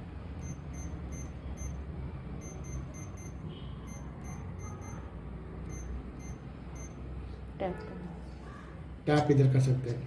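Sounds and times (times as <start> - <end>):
steady low hum: 0.0 - 9.1
keypad beeps: 0.4 - 1.8, 2.4 - 7.0.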